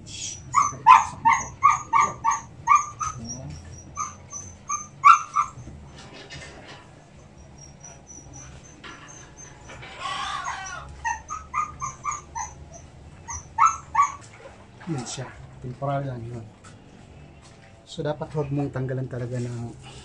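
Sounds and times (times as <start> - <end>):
dog yipping: 0.4 - 6.0, 7.2 - 14.6.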